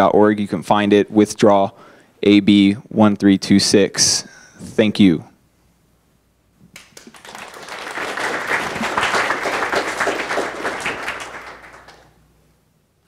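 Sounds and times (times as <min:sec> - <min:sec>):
audience applauding: 0:06.8 - 0:12.2.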